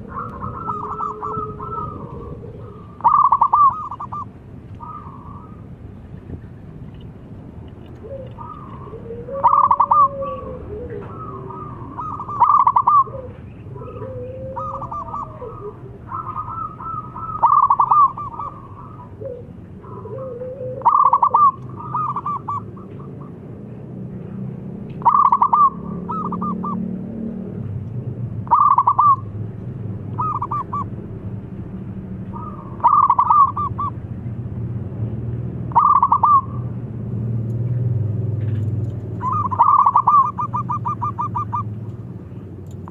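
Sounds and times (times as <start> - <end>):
dove cooing: 0.0 - 5.7, 8.0 - 23.5, 25.0 - 27.0, 28.4 - 29.3, 30.1 - 30.9, 32.3 - 34.0, 35.7 - 36.7, 39.1 - 42.9.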